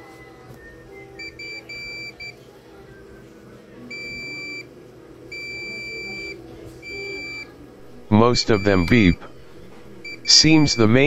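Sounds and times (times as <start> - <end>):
multimeter continuity beeps: 1.2 - 2.4, 3.9 - 4.7, 5.3 - 7.5, 8.4 - 11.0.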